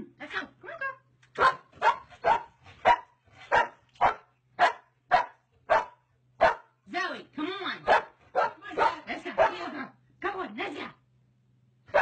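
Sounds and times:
dog barking: 1.4 - 6.8, 7.9 - 9.7.

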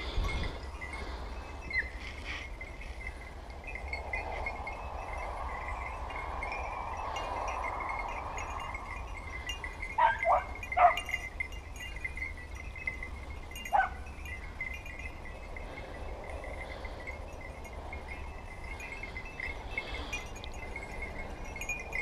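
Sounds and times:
puppies barking: 10.0 - 11.2, 13.7 - 14.1.

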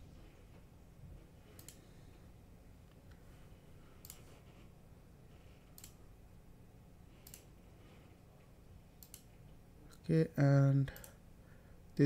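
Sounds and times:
computer mouse clicks: 1.5 - 1.8, 4.0 - 4.5, 5.6 - 6.0, 7.2 - 7.5, 9.0 - 9.4.

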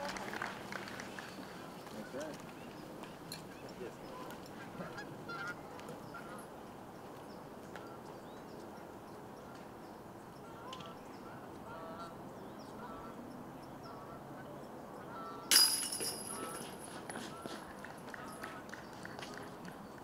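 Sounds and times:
outdoor background noise: 0.0 - 20.0
geese honking: 4.2 - 6.4, 10.4 - 12.2, 12.8 - 13.2, 13.8 - 15.5
loud ringing metal clank: 15.5 - 16.6.

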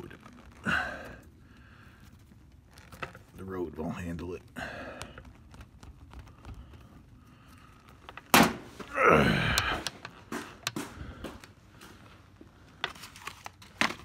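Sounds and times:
sharp thunk: 8.3 - 8.7.

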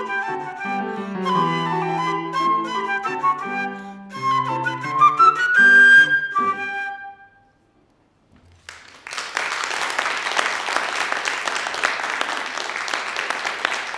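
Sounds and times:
piano: 0.0 - 7.6
flute: 0.0 - 7.8
audience applause: 8.5 - 13.9.

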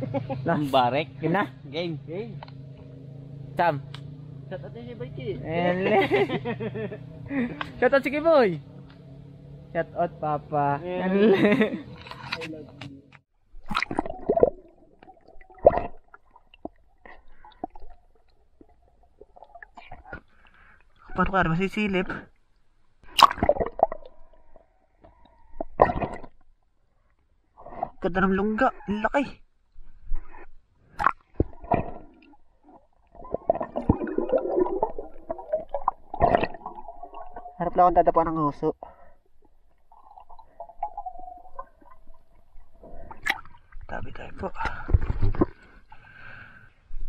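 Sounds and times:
water gurgling and sloshing: 13.4 - 47.0.

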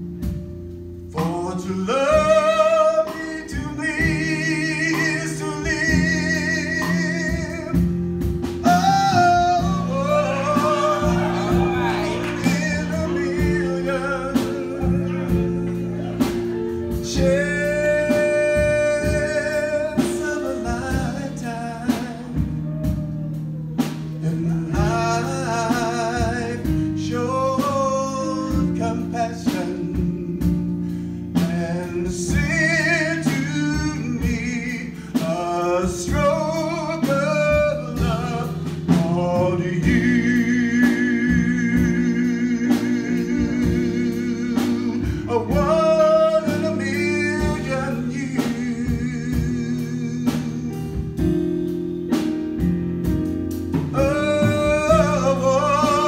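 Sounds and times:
instrumental backing music: 0.0 - 56.0
man singing love song: 1.0 - 51.7, 53.7 - 56.0
singer breathing: 30.7 - 31.4, 34.9 - 35.2, 45.0 - 45.3.

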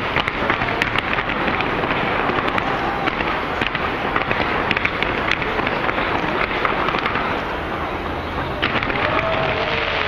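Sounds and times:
fireworks crackling and popping: 0.0 - 10.0.

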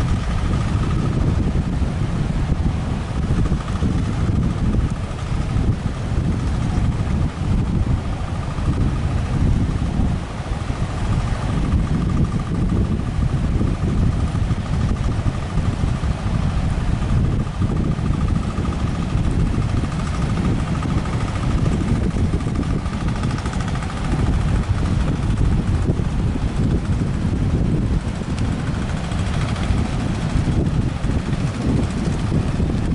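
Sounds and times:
boat engine drone: 0.0 - 32.9
breaking surf: 0.0 - 32.9
wind buffeting microphone: 0.0 - 32.9.

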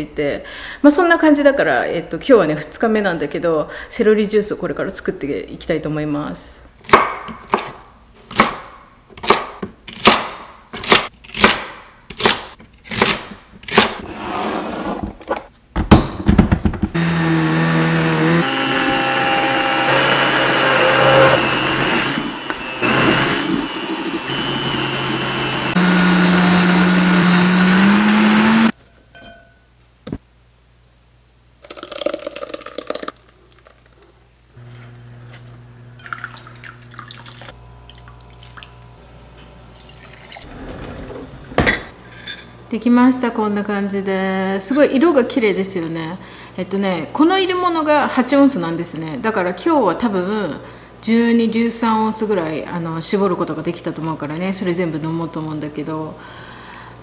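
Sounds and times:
blender running: 17.0 - 28.7, 34.6 - 39.0
pulp pouring: 31.6 - 34.2, 36.0 - 38.8, 39.7 - 40.5.

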